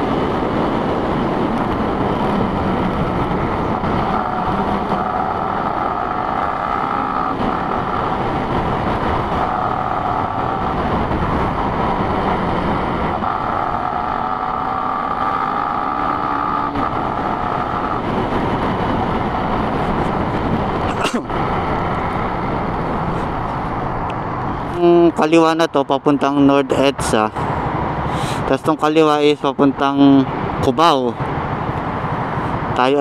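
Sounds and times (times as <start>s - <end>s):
whine drifting in pitch: 0.0s - 24.6s
motorcycle engine running: 0.0s - 25.0s
road and wind noise: 0.0s - 33.0s.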